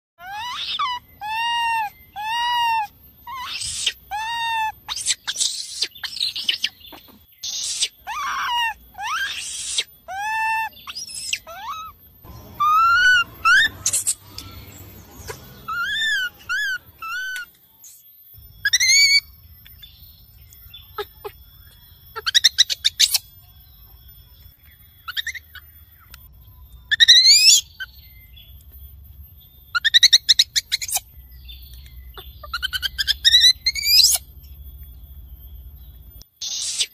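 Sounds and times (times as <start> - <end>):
baby monkey screaming: 0.2 - 17.5, 18.6 - 19.3, 22.1 - 23.3, 25.0 - 25.7, 26.9 - 28.0, 29.7 - 31.1, 32.1 - 34.3, 36.4 - 36.9.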